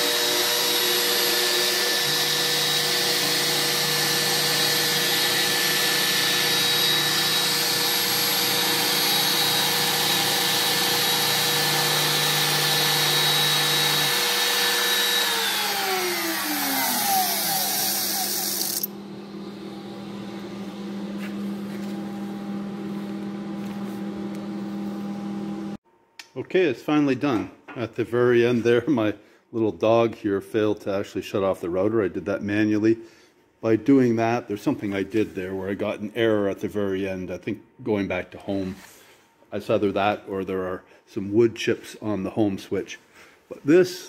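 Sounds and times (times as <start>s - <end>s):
cnc router spindle whine: 0.0s - 23.0s.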